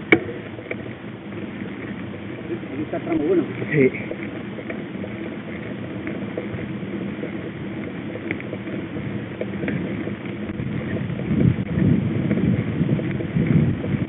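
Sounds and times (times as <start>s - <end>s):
faint ticks and rattles: 0.0s - 14.0s.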